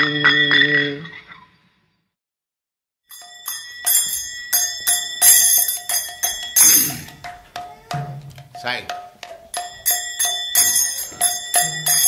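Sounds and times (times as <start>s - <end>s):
small hand cymbals ringing: 3.1s - 12.0s.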